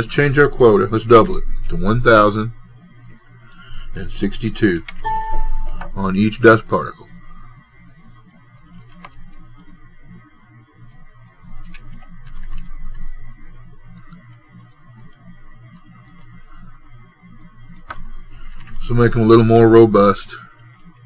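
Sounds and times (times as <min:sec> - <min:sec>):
low hum: 0:00.0 - 0:21.0
keyboard and mouse clicking: 0:10.9 - 0:13.0, 0:14.0 - 0:16.4.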